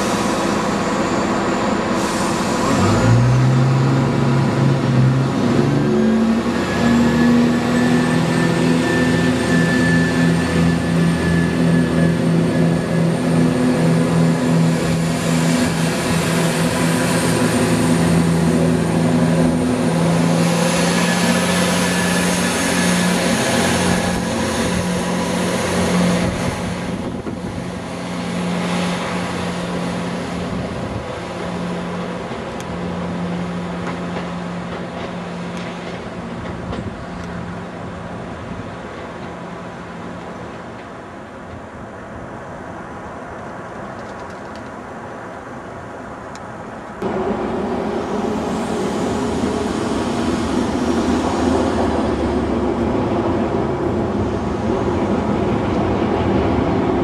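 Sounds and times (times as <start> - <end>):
train diesel engine revving: 0.0 - 38.6.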